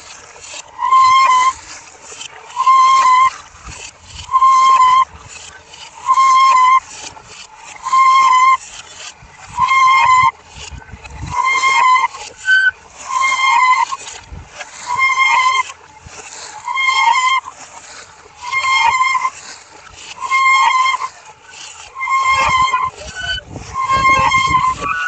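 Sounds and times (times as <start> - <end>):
low irregular rumble: 0.0 - 25.0.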